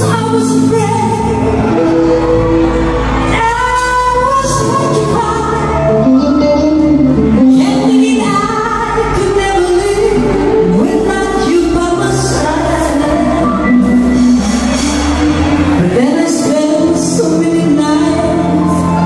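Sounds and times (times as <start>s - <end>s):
woman singing a pop song: 0.0s - 1.5s, 3.3s - 6.2s, 7.4s - 15.0s, 15.8s - 19.0s
live band accompaniment: 0.0s - 19.0s.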